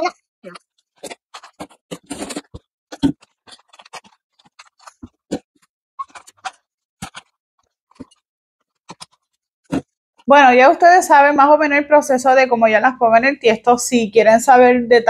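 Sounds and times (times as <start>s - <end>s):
small pots clicking and knocking: 0.0s - 10.3s.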